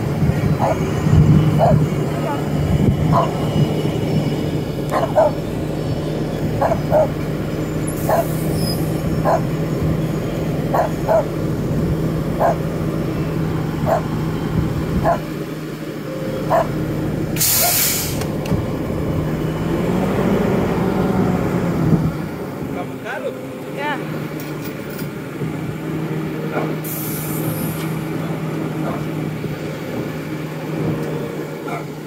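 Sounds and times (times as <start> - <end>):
diesel truck engine idling: 0.0 - 32.0
dog barking: 0.6 - 0.8, 1.6 - 2.5, 3.1 - 3.4, 4.9 - 5.4, 6.6 - 7.2, 8.1 - 8.3, 9.2 - 9.5, 10.7 - 11.3, 12.4 - 12.6, 13.8 - 14.1, 15.0 - 15.3, 16.5 - 16.8, 26.5 - 26.8, 28.8 - 29.1, 31.6 - 32.0
air brake hiss: 17.4 - 18.3, 26.8 - 27.9.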